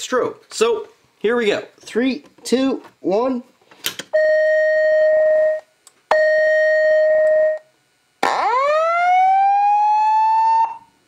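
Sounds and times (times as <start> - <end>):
rising whoop alarm: 8.2 - 10.9.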